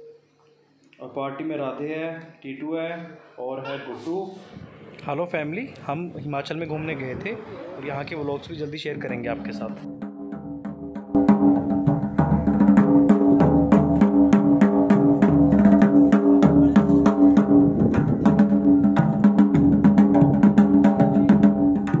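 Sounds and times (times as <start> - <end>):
drums beaten in quick rhythm: 9.0 - 22.0.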